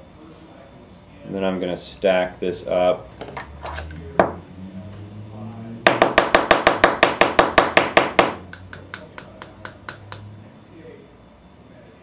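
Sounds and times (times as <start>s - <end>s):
hair stacker knocking on table: 5.9s - 10.3s.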